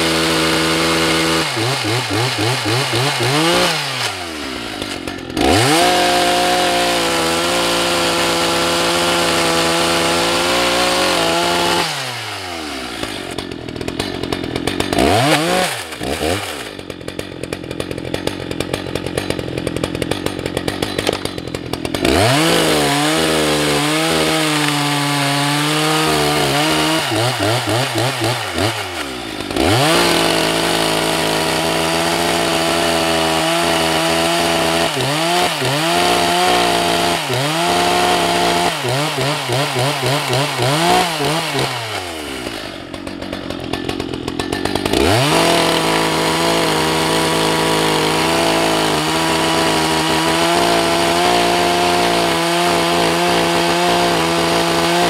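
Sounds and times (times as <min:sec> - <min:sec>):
chainsaw cutting logs: 0:00.0 - 0:55.0.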